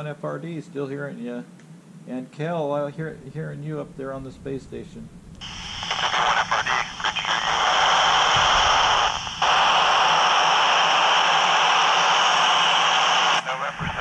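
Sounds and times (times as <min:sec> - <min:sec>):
radio static hissing: 0:05.4 - 0:14.0.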